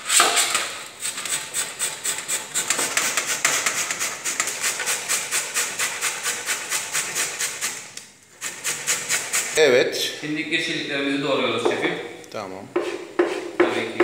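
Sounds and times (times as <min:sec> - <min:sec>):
vegetables grated on metal grater: 0:01.0 - 0:09.6.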